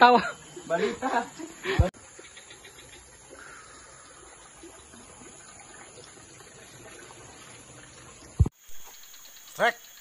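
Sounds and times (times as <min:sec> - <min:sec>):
low hiss by water: 0:00.0 - 0:10.0.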